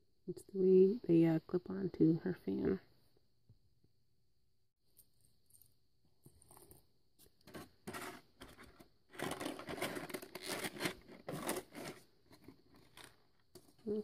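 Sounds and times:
plastic packaging rustling: 0:07.4 - 0:14.0.

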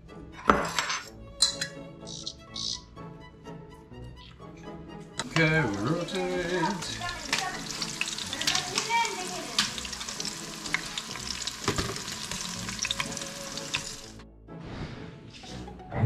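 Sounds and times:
frying in hot oil sizzling: 0:05.2 - 0:14.2.

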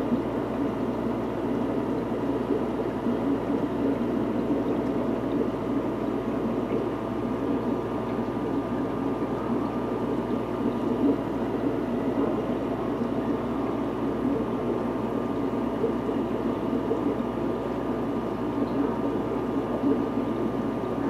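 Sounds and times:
aquarium filter bubbling: 0:00.0 - 0:21.0
faint steady hum: 0:00.0 - 0:21.0.

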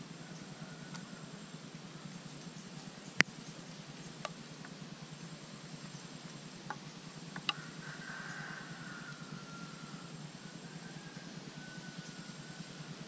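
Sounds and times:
steady low hum: 0:00.0 - 0:13.0
small clicks and ticks: 0:06.7 - 0:07.6.

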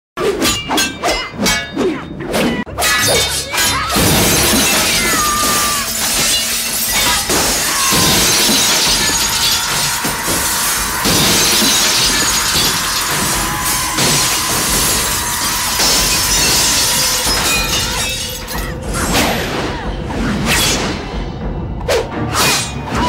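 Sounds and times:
glass shattering: 0:02.9 - 0:18.7.

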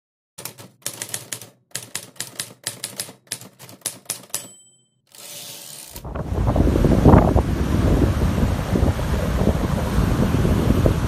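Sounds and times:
typewriter bell ding: 0:00.4 - 0:05.7
typewriter clacking: 0:00.4 - 0:06.0
crashing surf: 0:06.0 - 0:11.0
wind buffeting the microphone: 0:06.0 - 0:11.0.

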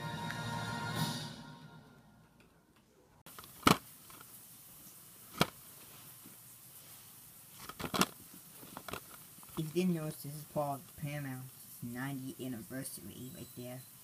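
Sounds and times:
television music: 0:00.0 - 0:02.8
plastic case clicks: 0:03.3 - 0:04.3, 0:07.6 - 0:08.2.

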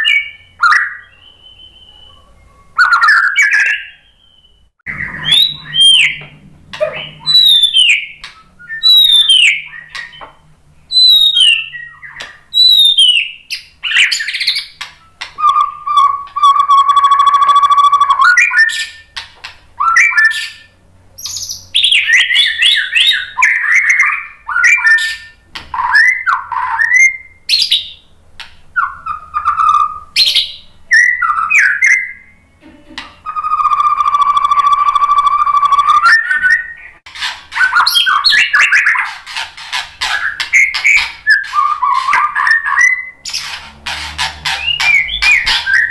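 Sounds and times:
bird singing whistled phrases: 0:00.0 - 0:06.2, 0:06.8 - 0:10.2, 0:10.9 - 0:19.1, 0:19.8 - 0:28.0, 0:28.8 - 0:32.4, 0:33.2 - 0:37.0, 0:37.6 - 0:39.0, 0:40.1 - 0:43.5, 0:44.5 - 0:45.9.

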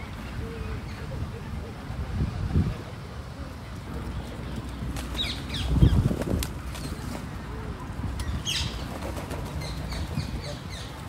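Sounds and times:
small birds chirping: 0:03.8 - 0:07.2, 0:08.2 - 0:11.0.

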